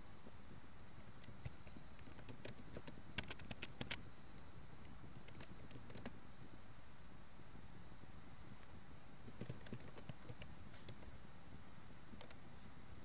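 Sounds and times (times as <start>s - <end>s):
faint steady hum: 0.0s - 13.0s
keyboard typing: 2.0s - 4.0s, 9.3s - 10.5s.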